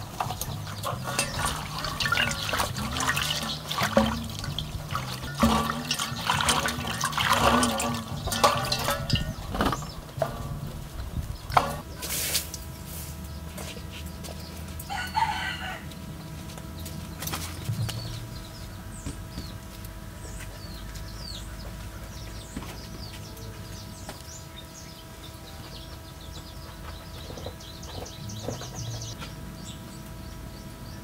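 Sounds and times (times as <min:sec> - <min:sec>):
small birds chirping: 0:16.8 - 0:31.0.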